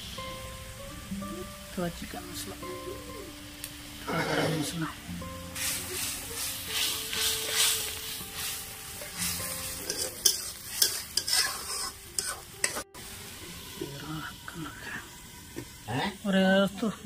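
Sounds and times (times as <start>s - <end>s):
spices sizzling in oil: 0.0s - 17.0s
spatula scraping a pan: 5.6s - 12.8s.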